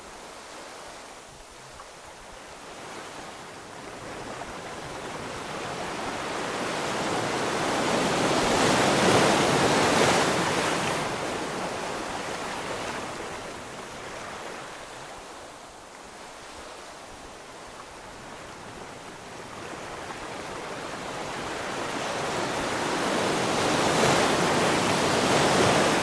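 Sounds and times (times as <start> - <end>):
ocean wave breaking: 19.5 - 26.0.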